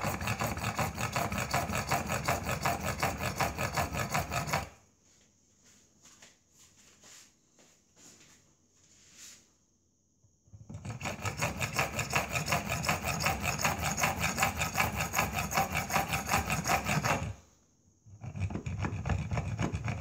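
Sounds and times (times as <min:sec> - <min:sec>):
hacksaw sawing metal rod: 0:00.0 - 0:04.8, 0:10.7 - 0:17.4, 0:18.2 - 0:20.0.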